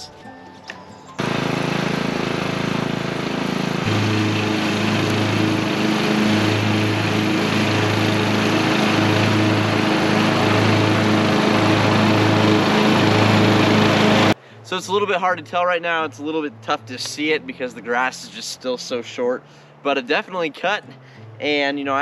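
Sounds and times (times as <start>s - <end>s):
riding lawn mower running: 1.2s - 14.4s.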